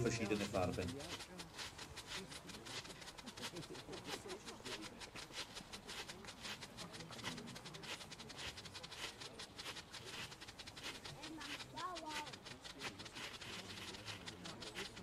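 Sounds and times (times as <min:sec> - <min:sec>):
firework strobes popping: 0:00.0 - 0:15.0.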